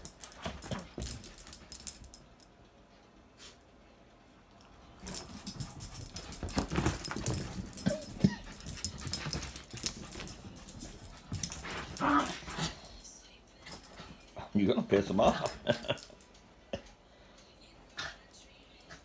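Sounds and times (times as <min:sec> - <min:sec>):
rustling and scuffling: 0:05.0 - 0:13.0.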